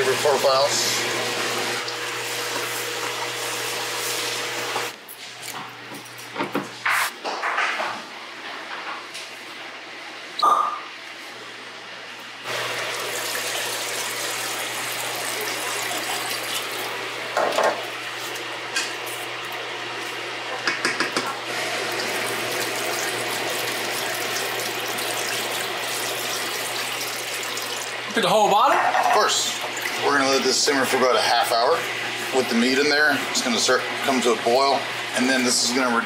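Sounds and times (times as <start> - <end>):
vegetables sizzling in a pot: 0.4 - 4.9, 12.5 - 17.2, 21.5 - 28.0.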